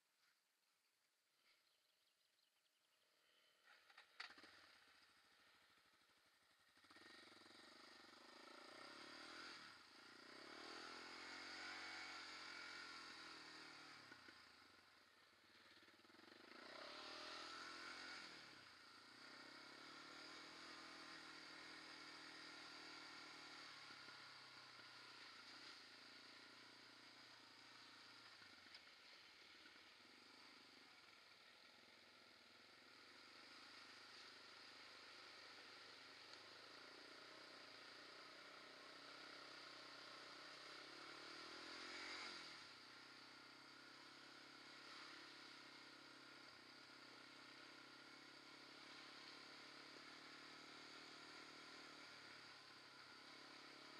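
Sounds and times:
quad engine revving: 0:06.8 - 0:14.4, 0:16.2 - 0:26.4, 0:37.0 - 0:43.2.

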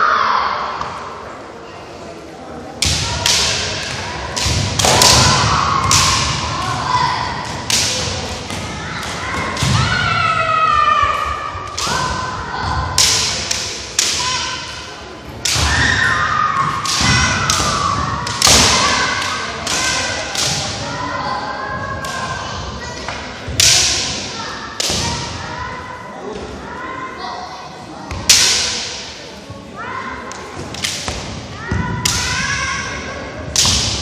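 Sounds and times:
fencers shouting: 0:02.8 - 0:26.1, 0:29.8 - 0:34.0
bamboo sword strikes: 0:28.2 - 0:29.1, 0:33.5 - 0:34.0.

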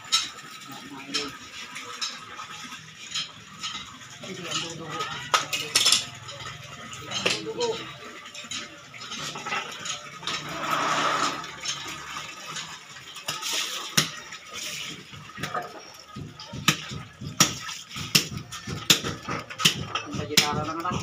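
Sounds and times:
water splashing on fish: 0:09.8 - 0:20.9.

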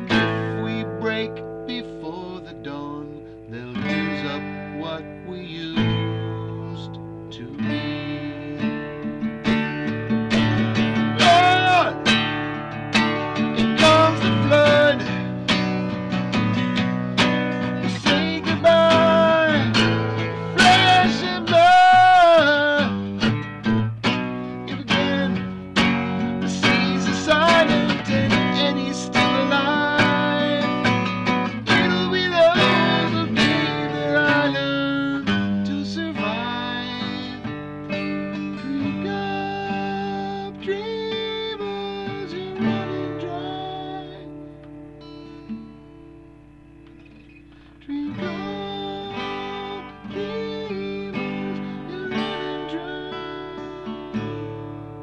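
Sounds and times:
man singing: 0:00.0 - 0:08.9, 0:10.3 - 0:12.4, 0:13.2 - 0:44.5, 0:47.8 - 0:54.7
acoustic guitar strummed and picked: 0:00.0 - 0:55.0.

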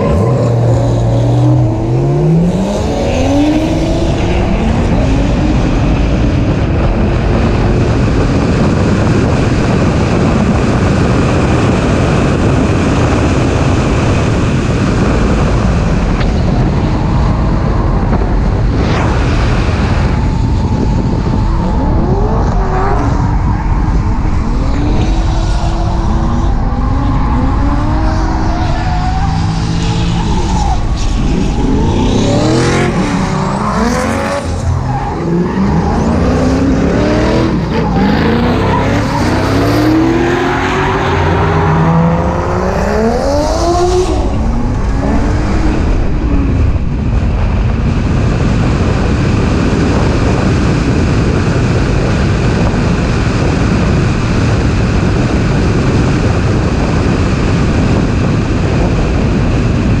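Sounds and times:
wind on microphone: 0:00.0 - 1:00.0
car engine revving hard: 0:21.6 - 0:59.9
tyres squealing and skidding: 0:25.1 - 0:36.6.

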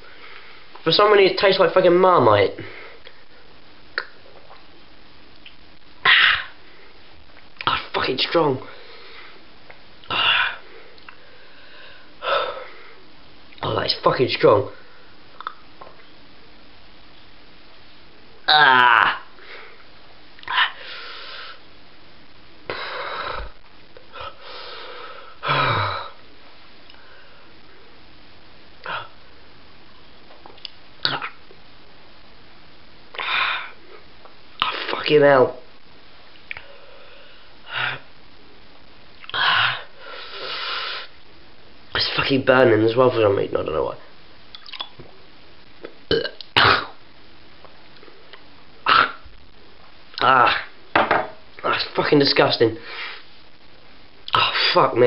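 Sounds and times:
man gulping: 0:04.0 - 0:04.7, 0:15.3 - 0:16.1, 0:30.3 - 0:31.6, 0:44.5 - 0:45.2, 0:45.8 - 0:47.0
loud throaty gasp: 0:06.0 - 0:06.6, 0:22.7 - 0:26.2, 0:33.1 - 0:33.8
man gasping wheezy breaths: 0:10.1 - 0:13.0
man sniffing: 0:39.4 - 0:41.1.

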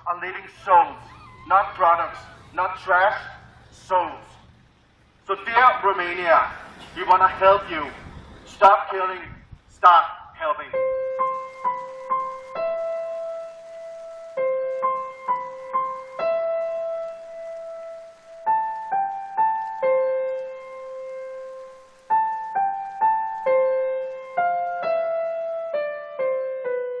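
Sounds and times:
gentle piano melody: 0:10.7 - 0:27.0.

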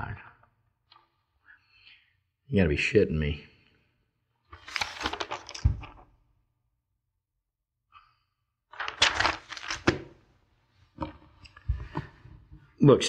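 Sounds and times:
paper sheets rustling: 0:04.5 - 0:06.0, 0:08.7 - 0:10.3.

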